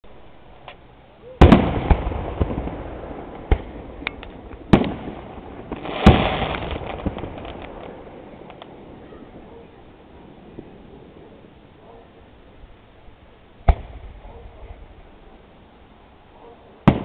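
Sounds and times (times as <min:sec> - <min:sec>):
fireworks crackling pops: 0:00.5 - 0:09.5, 0:13.6 - 0:15.4
fireworks bangs: 0:01.4 - 0:11.5, 0:13.6 - 0:15.4.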